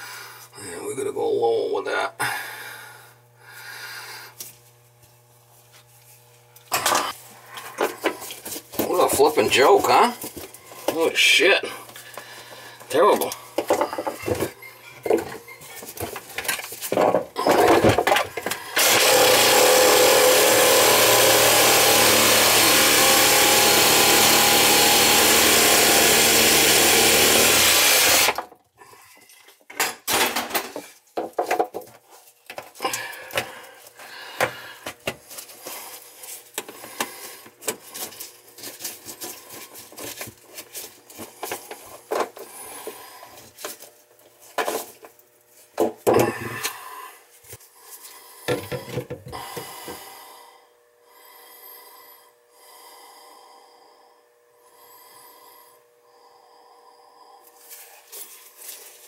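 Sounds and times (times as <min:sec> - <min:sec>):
pipe pieces knocking and scraping: 0:13.6 - 0:18.5, 0:29.7 - 0:32.8
power tool cutting pipe: 0:18.6 - 0:28.5.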